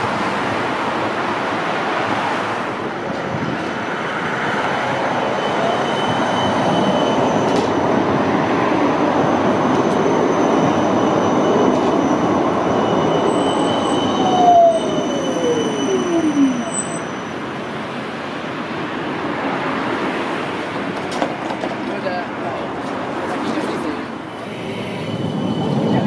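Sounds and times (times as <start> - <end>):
tram wheels rumbling on rails: 0.0 - 26.0
high wheel squeal: 4.8 - 7.8, 9.7 - 17.8, 24.3 - 26.0.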